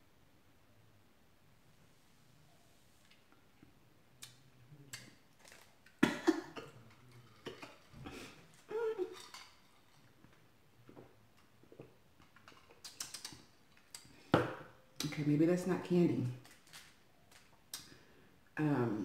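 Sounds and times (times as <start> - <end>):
plastic packet rustling: 16.4 - 17.5.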